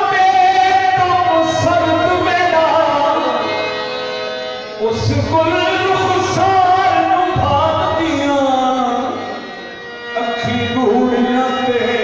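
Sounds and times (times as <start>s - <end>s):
harmonium chords: 0.0s - 12.0s
men singing: 10.2s - 12.0s.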